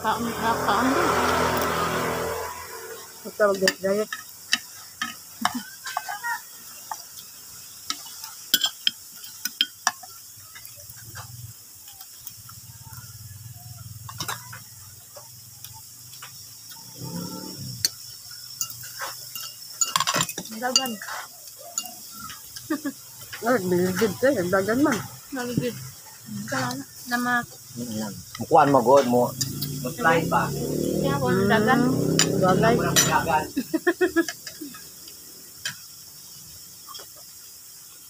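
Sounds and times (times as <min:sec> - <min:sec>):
cutlery clinking on a plate: 0:03.6 - 0:06.1, 0:07.9 - 0:10.7, 0:18.6 - 0:22.6, 0:32.2 - 0:33.3.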